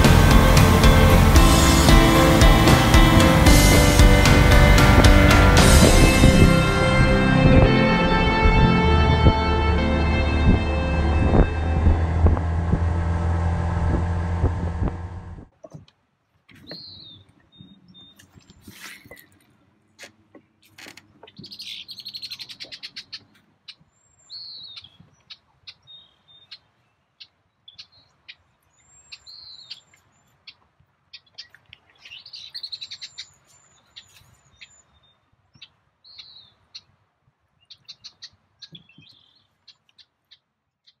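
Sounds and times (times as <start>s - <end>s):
birds chirping and singing: 16.6s - 19.2s, 21.1s - 26.6s, 31.2s - 36.6s, 37.6s - 41.0s.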